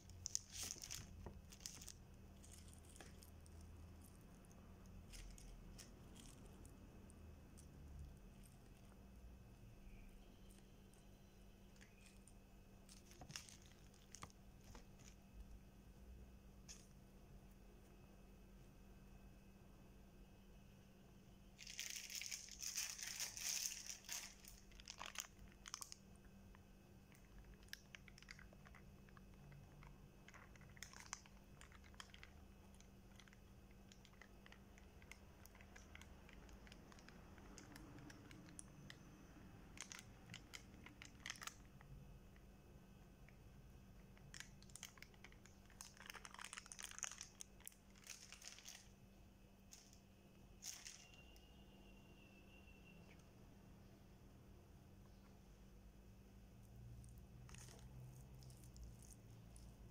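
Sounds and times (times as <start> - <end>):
plastic bags crinkling: 0.0 - 9.0, 11.7 - 15.3, 21.6 - 26.2, 27.1 - 39.1, 39.7 - 41.9, 44.1 - 49.0, 49.7 - 50.0, 50.6 - 51.4, 57.3 - 59.9
steady low hum: 0.0 - 59.9.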